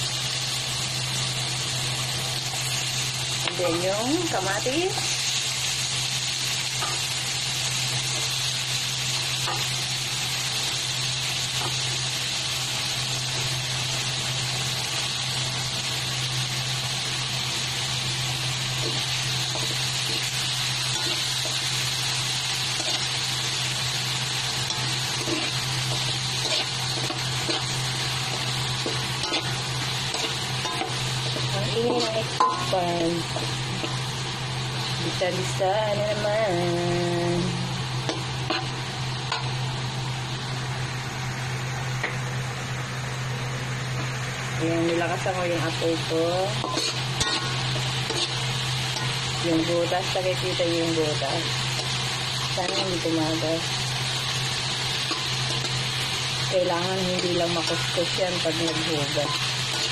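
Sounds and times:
food sizzling in oil: 0.0s - 59.9s
spatula scraping wok: 17.1s - 36.7s, 37.3s - 39.7s, 44.7s - 59.9s.

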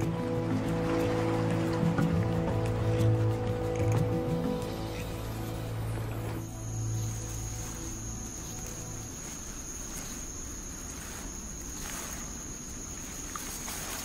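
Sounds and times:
soft music: 0.0s - 14.0s
insects singing high-pitched: 2.2s - 14.0s
light hiss: 3.1s - 14.0s.

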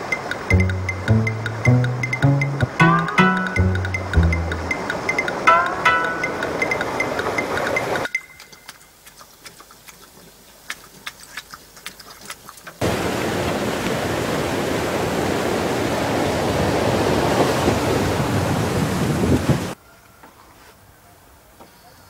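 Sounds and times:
water rushing over rocks: 12.8s - 19.8s.

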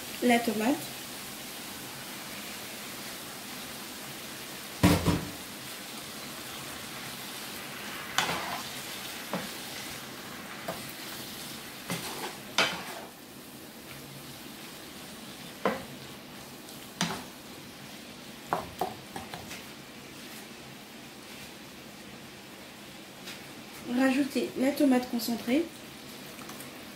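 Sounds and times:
pan sizzling: 0.0s - 26.9s
spatula scraping a frying pan: 8.1s - 10.0s, 11.8s - 13.2s.

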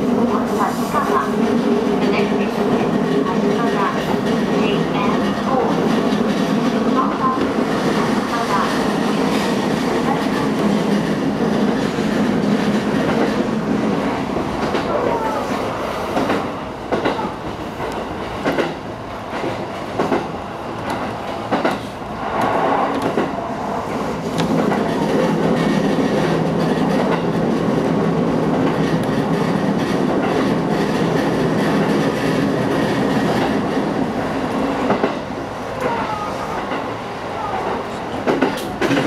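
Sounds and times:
train running drone: 0.0s - 39.0s
train wheels clacking over rail joints: 38.2s - 39.0s.

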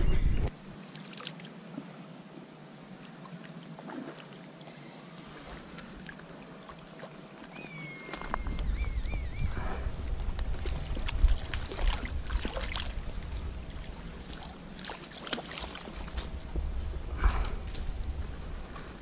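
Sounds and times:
soft outdoor hiss: 0.0s - 19.0s
bird whistling call: 7.5s - 9.6s.

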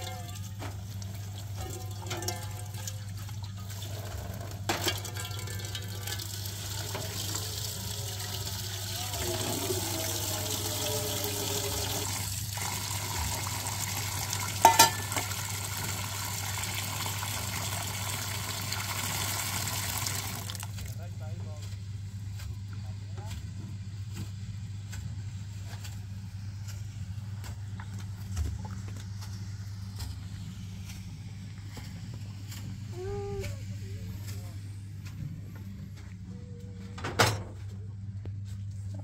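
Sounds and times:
tap water pouring into steel pot: 0.0s - 21.0s.

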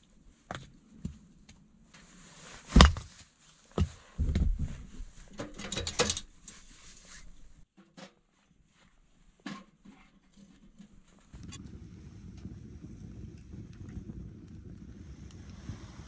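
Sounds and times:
dull thumps of firewood: 2.7s - 3.2s.

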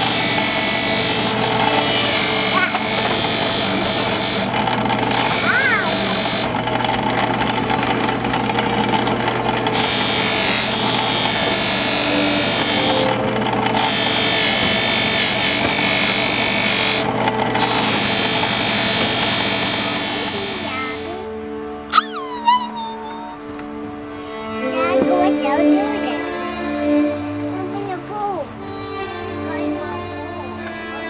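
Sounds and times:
sanding disc hiss: 0.0s - 6.5s, 9.7s - 21.3s
drill press motor hum: 0.0s - 21.4s.

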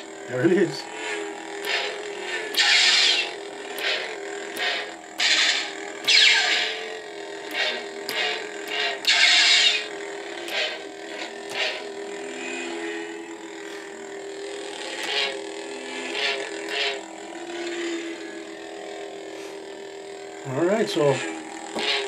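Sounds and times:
toy lightsaber electronic hum: 0.0s - 22.0s
lightsaber sound effect bursts: 1.6s - 12.8s.

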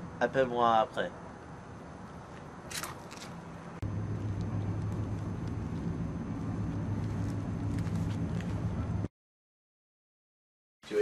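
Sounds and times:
vehicle engine droning: 3.4s - 9.1s.

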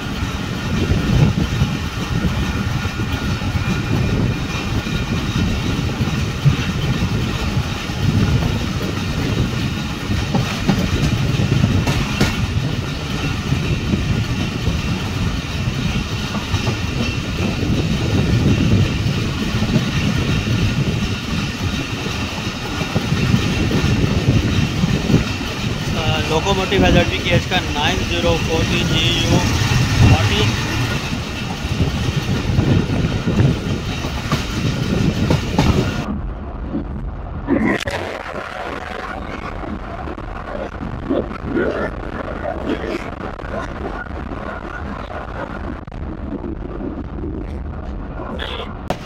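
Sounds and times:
sharp track clicks: 0.0s - 36.1s
train wheels rumbling on track: 0.0s - 49.0s.

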